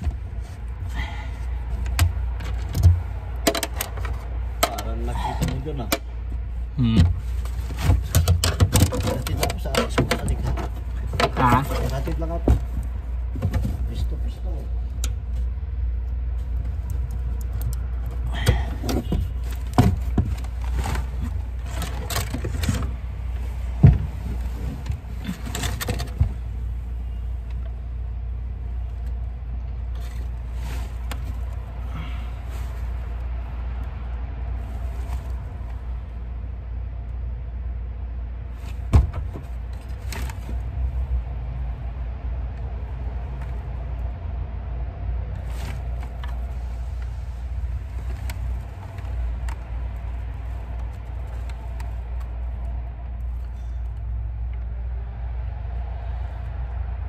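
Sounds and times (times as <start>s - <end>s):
steady low rumble: 0.0s - 57.0s
clicks and knocks of tools: 1.8s - 4.8s.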